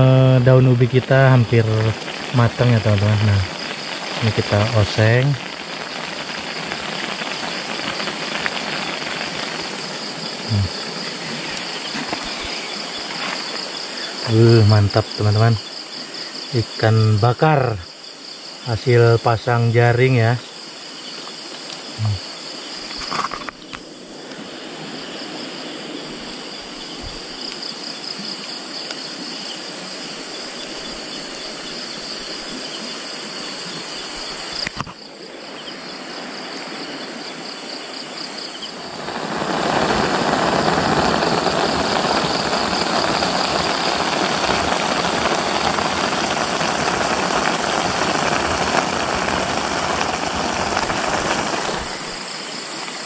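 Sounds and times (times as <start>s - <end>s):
crickets chirping: 0.0s - 53.0s
eggs sizzling in a wok: 38.8s - 52.2s.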